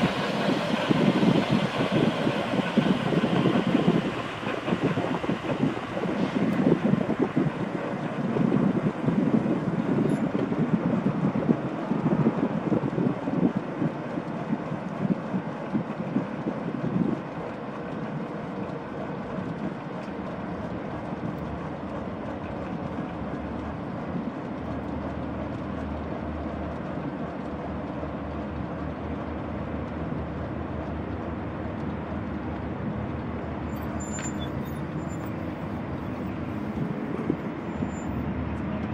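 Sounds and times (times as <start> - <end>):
helicopter turbine whine: 0.0 - 25.6
constant rushing noise: 0.0 - 38.9.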